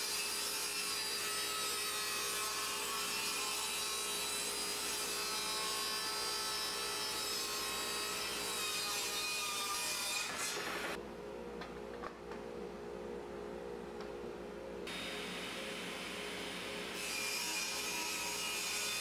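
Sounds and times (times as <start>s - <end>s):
table saw cutting wood: 0.0s - 11.0s, 14.9s - 19.0s.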